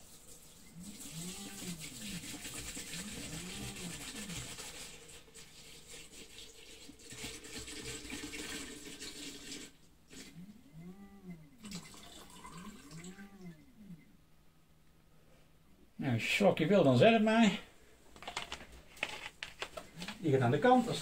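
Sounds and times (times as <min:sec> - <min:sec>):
liquid pouring into plastic tank: 0:00.0 - 0:10.3, 0:11.6 - 0:13.1.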